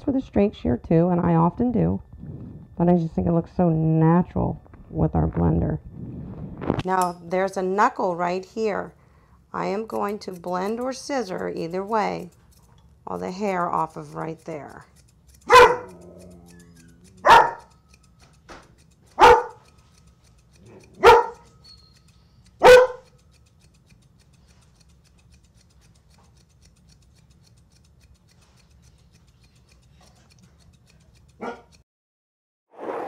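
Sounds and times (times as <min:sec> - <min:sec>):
dog barking: 0:15.5 - 0:17.7, 0:19.2 - 0:19.6, 0:20.7 - 0:21.5, 0:22.6 - 0:23.1, 0:31.4 - 0:31.8.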